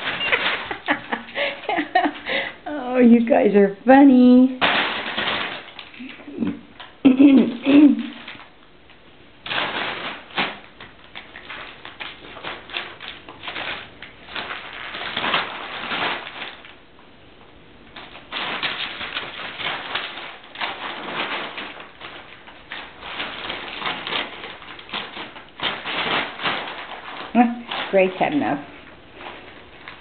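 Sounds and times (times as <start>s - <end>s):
paper crinkling and rustling: 0.0s - 2.3s, 4.6s - 7.0s, 9.4s - 17.0s, 17.8s - 30.0s.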